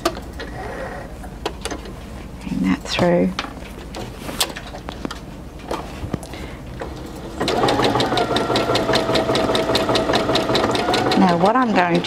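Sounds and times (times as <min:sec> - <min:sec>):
sewing machine sewing: 0:07.3 - 0:12.0.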